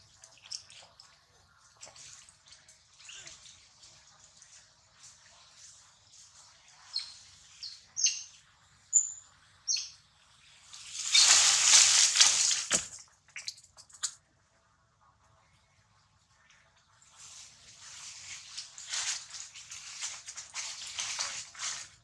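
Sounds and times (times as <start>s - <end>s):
birds chirping: 6.8s - 10.0s.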